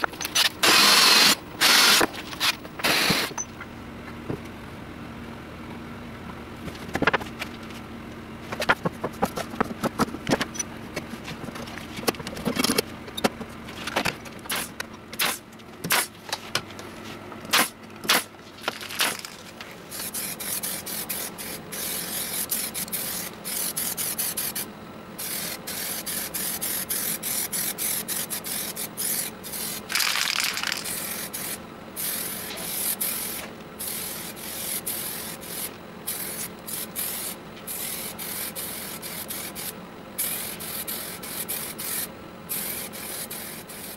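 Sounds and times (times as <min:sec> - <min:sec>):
aerosol spray paint hissing: 0:02.8 - 0:03.3, 0:19.9 - 0:29.8, 0:30.6 - 0:43.9.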